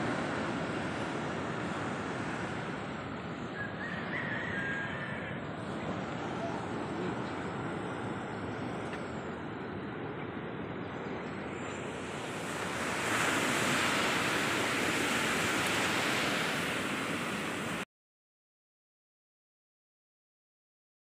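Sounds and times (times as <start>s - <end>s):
surf rushing: 0.0s - 17.8s
wind on microphone: 11.8s - 17.8s.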